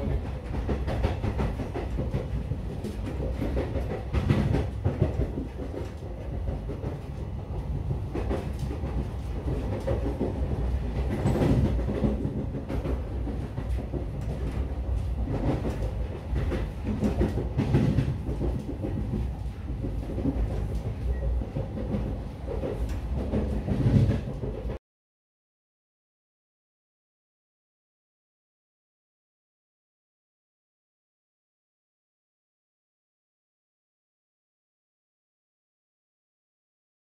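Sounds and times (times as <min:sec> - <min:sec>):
train rumble on rails: 0:00.0 - 0:24.8.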